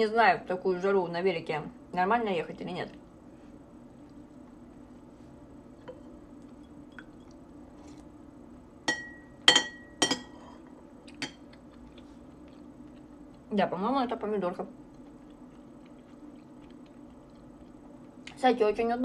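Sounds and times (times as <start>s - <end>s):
spoon clinking against dish: 8.9s - 10.4s.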